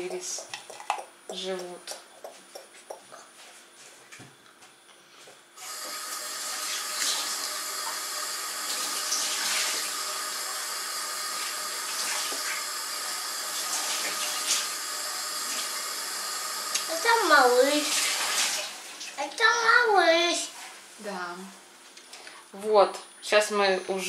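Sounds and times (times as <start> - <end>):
tap water running into sink: 5.6 - 19.2.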